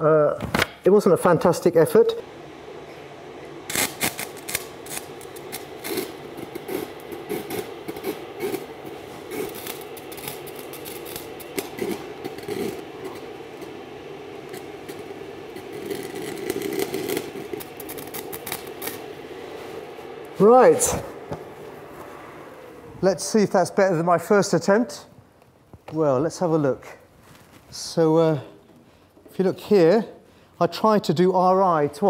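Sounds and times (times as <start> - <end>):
steady hum: 0.0 - 32.0
welding arc crackling: 3.4 - 21.9.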